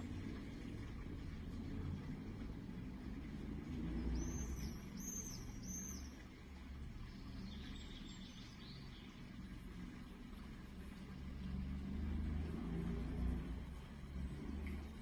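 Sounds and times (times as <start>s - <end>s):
low steady rumble: 0.0s - 15.0s
small bird chirping: 4.1s - 6.1s.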